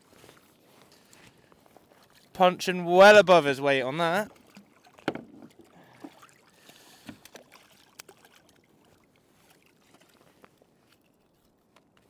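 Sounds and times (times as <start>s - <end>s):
faint clicks and knocks on boat: 4.3s - 6.2s, 6.8s - 8.6s, 9.4s - 12.0s.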